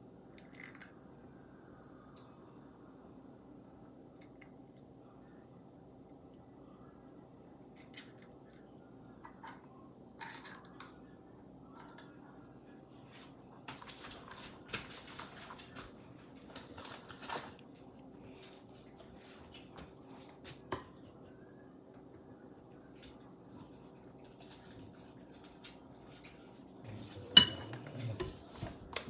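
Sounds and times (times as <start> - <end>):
low steady hum: 0.0 - 29.0
kitchen items clicking and tapping: 26.9 - 29.0.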